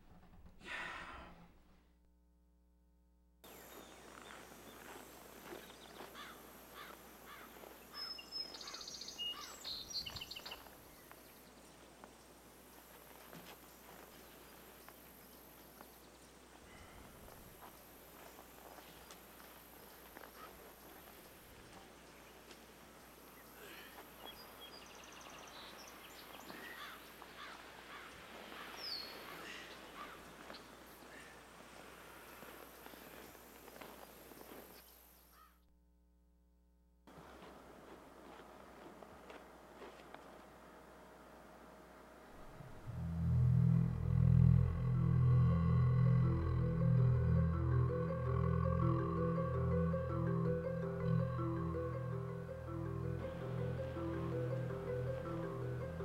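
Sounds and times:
outdoor background noise: 0:00.0 - 0:56.0
small birds chirping: 0:03.4 - 0:12.9, 0:13.6 - 0:35.6
bird trill: 0:06.1 - 0:11.1, 0:42.4 - 0:56.0.

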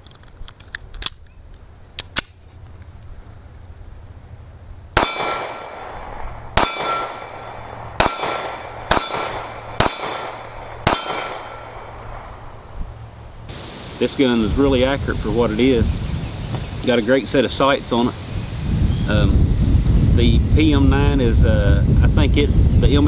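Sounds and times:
pistol shots ringing: 0:05.0 - 0:12.2.

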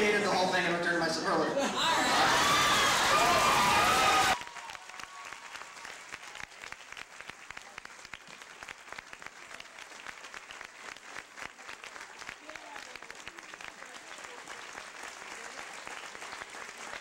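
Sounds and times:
loud amplified voice: 0:00.0 - 0:01.7
audience applauding: 0:01.7 - 0:17.0.

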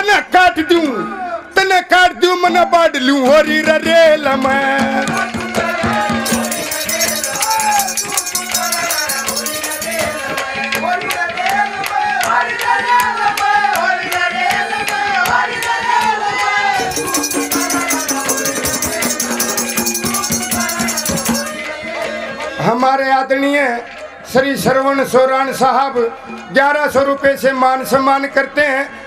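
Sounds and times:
hand drum beats: 0:04.4 - 0:11.2, 0:16.7 - 0:21.7
jingling rattle percussion: 0:05.5 - 0:10.8, 0:16.8 - 0:21.8.

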